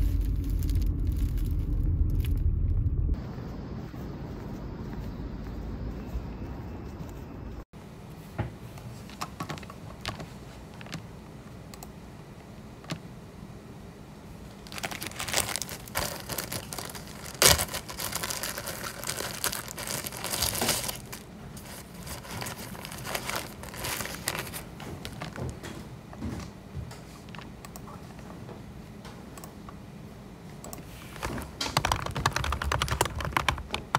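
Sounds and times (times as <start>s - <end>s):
low outdoor rumble: 0.0s - 8.1s, 10.6s - 26.7s
plastic bag and paper crinkling: 14.6s - 25.8s, 31.1s - 33.9s.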